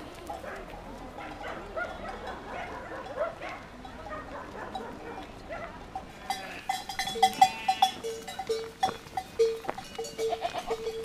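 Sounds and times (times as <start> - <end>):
sheep bells clanking: 0.0 - 11.0
sheep bleating: 6.1 - 8.3, 9.8 - 11.0.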